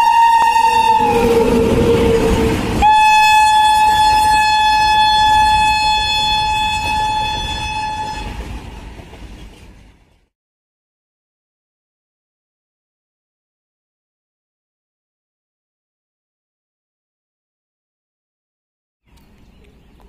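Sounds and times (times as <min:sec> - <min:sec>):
train horn: 0:00.0 - 0:08.8
passing train rushing: 0:00.0 - 0:10.3.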